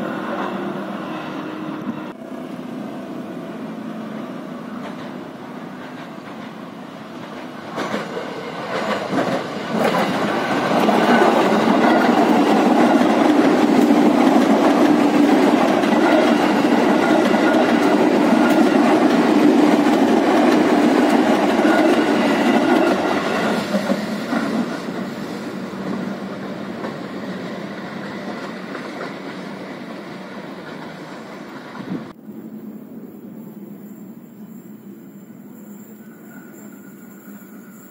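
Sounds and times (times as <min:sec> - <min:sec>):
train wheels clattering over rails: 0:04.8 - 0:32.2.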